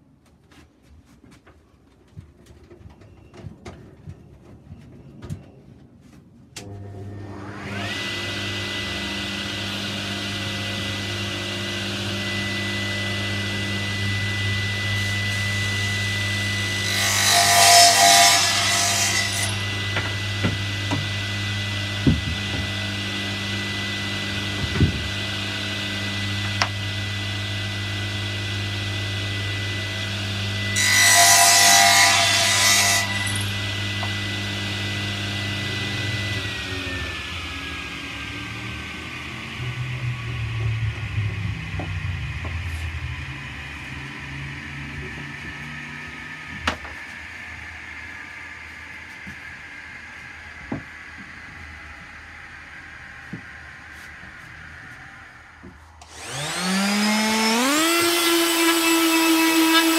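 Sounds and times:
table saw running: 6.6 - 59.9
saw blade cutting wood: 7.2 - 26.8, 29.3 - 38.6, 56.0 - 59.9
saw blade spinning down: 7.2 - 59.9.

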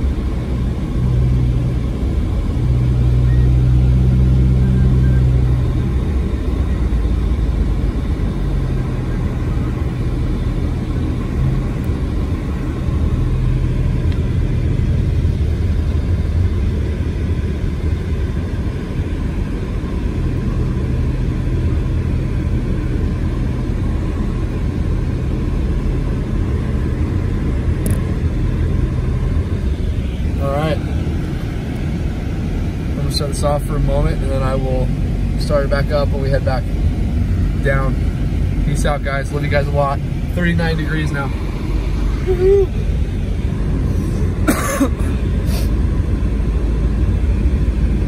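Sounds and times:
engine and tyres rumbling: 0.0 - 48.0
low engine hum: 0.0 - 48.0.

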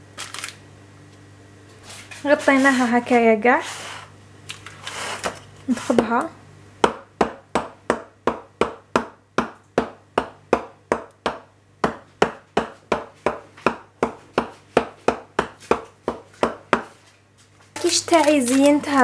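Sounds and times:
knife tapping into dough: 6.8 - 17.0.

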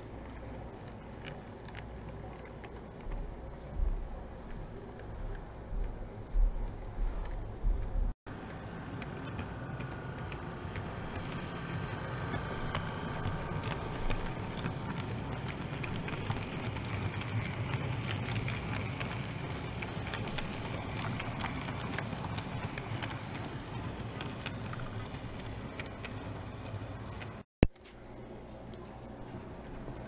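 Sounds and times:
wheels clicking on track: 6.7 - 27.4
model train motor hum: 8.3 - 27.4.

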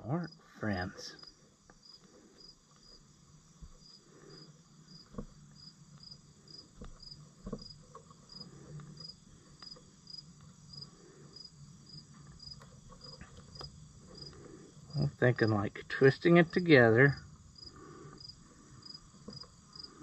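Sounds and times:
cricket chirping: 0.0 - 20.0
faint clicks and knocks: 5.0 - 10.6, 12.0 - 14.5.

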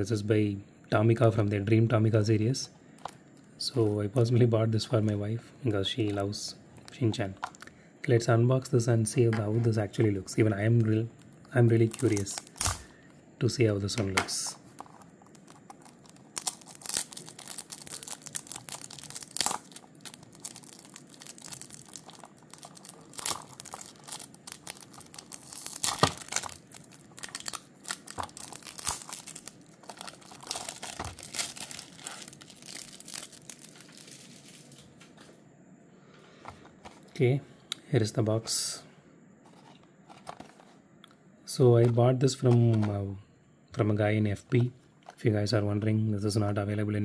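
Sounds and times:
plastic film crinkling: 10.4 - 12.9, 14.6 - 35.0.

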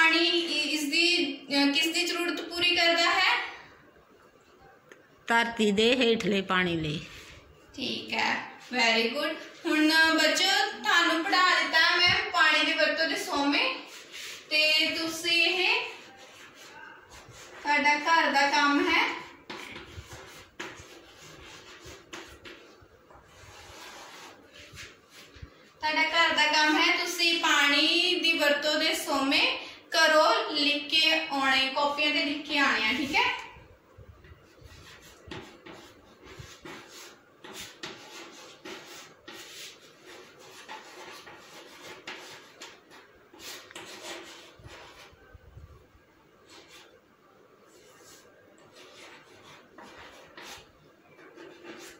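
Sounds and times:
chalk scratching on blackboard: 12.5 - 25.5, 34.5 - 45.4, 46.4 - 47.0, 47.6 - 51.9
chalk taps on blackboard: 35.0 - 39.7.

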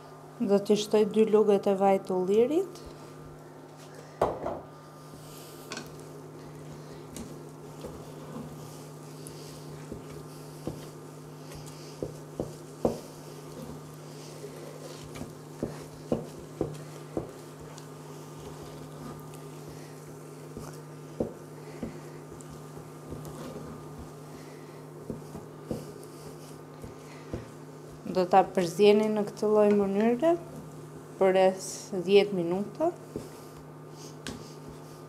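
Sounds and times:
electric hob hum: 0.0 - 35.0
wooden spoon scraping pot: 5.1 - 31.2.

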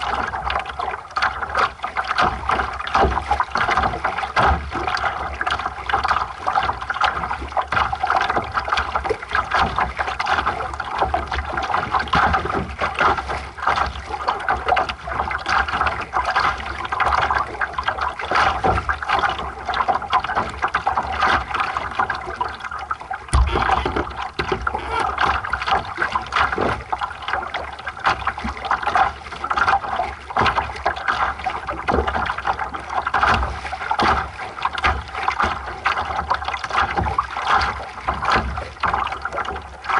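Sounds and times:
water splashing against hull: 0.0 - 39.9
sharp knock: 23.4 - 24.0.

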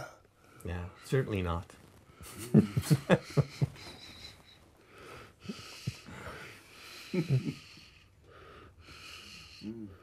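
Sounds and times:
person breathing: 3.2 - 10.0.

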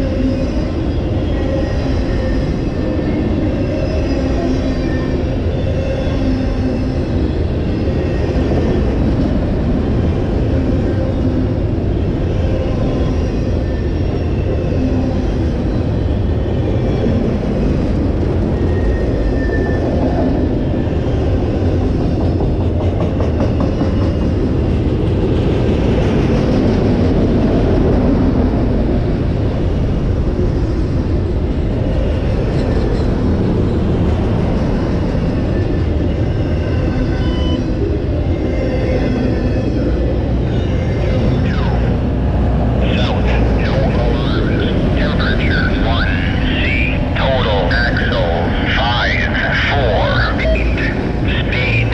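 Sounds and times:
train wheels rumbling on rail: 0.0 - 51.9.

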